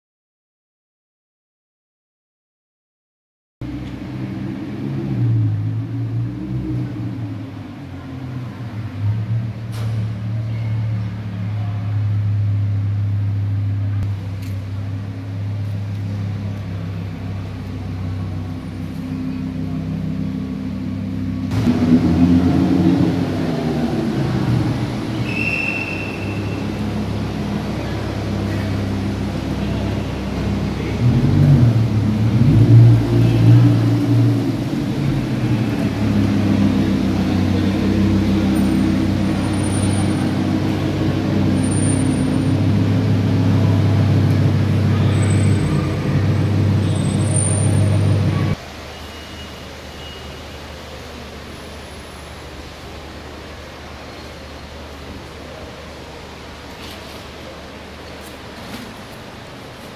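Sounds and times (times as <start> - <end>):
car engine idling: 3.6 - 48.6
engine throttle blips: 3.6 - 51.4.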